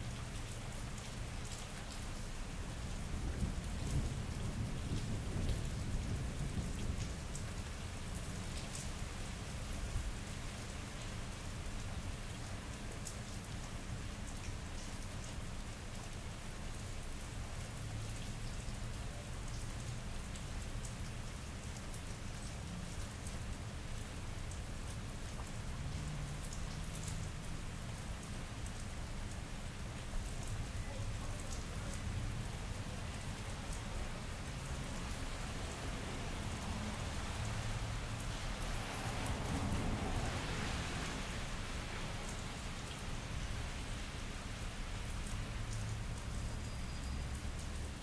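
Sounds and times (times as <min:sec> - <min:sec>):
rain on wet pavement: 0:00.0 - 0:48.0
low rumble of thunder: 0:03.0 - 0:07.6.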